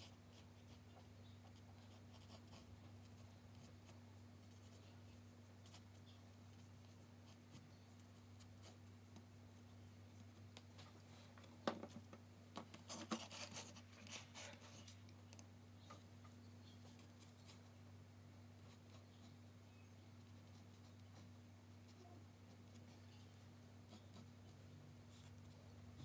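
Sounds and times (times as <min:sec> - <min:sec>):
pencil scratching on paper: 0:00.0 - 0:04.8, 0:12.9 - 0:15.0, 0:20.2 - 0:26.0.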